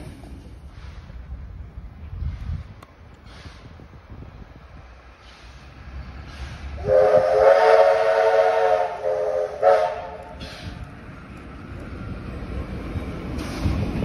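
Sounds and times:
passing train: 0.0s - 14.0s
steam whistle blasts: 6.8s - 10.8s.

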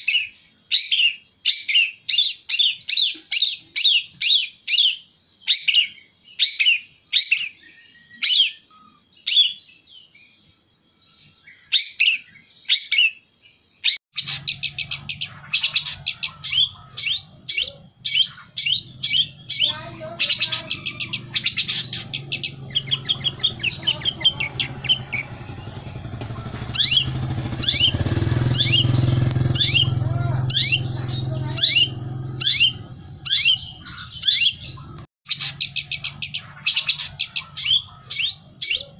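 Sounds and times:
bird calling and chattering: 0.0s - 9.9s, 11.2s - 38.9s
low engine hum: 18.7s - 34.0s.

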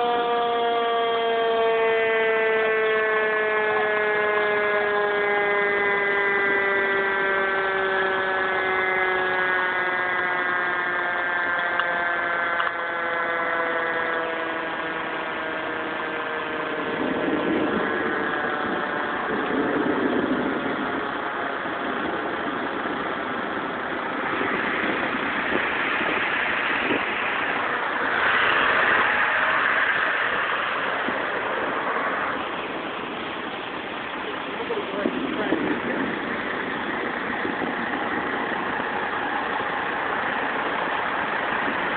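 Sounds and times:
engine noise: 0.0s - 41.9s
fire engine siren winding down: 0.0s - 41.9s
steady rain: 17.0s - 41.9s.

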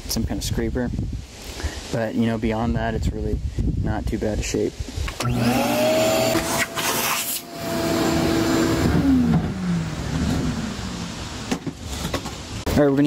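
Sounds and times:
vacuum cleaner motor whine: 5.2s - 11.1s.

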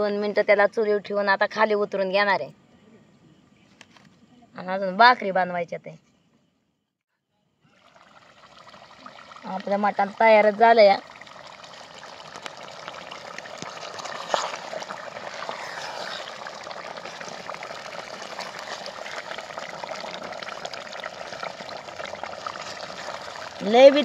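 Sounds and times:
gravy bubbling in a pot: 7.7s - 24.0s
wooden spatula stirring: 12.0s - 24.0s.

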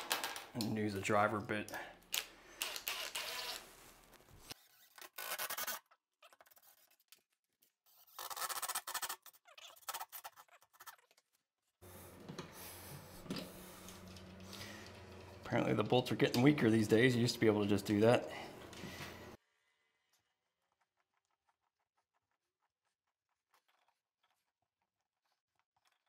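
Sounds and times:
low steady hum: 11.9s - 19.4s.

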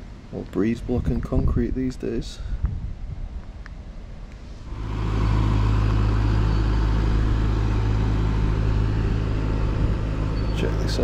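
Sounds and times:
vehicle engine humming: 3.5s - 11.0s.

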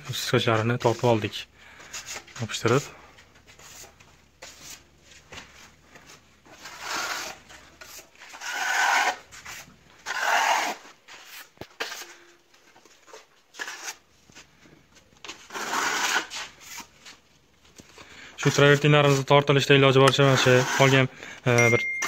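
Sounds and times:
trowel scraping plaster: 6.4s - 14.1s, 15.2s - 17.2s, 18.4s - 19.3s, 20.0s - 21.1s.

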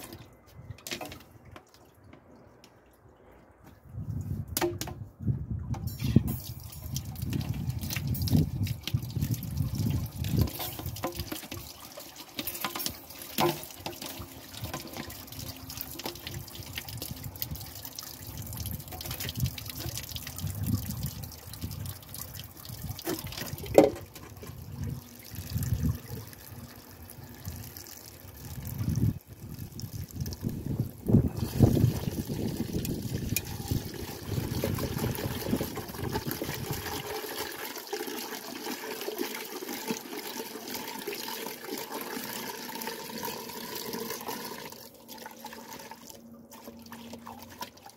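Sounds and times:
water splashing into sink: 6.0s - 26.4s
water pouring into pot: 6.3s - 47.9s.

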